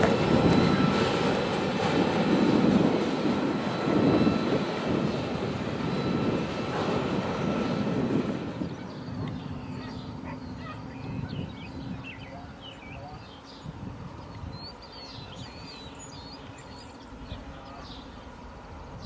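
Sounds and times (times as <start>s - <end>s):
diesel locomotives rumbling: 0.0s - 19.0s
birds chirping and warbling: 7.5s - 19.0s.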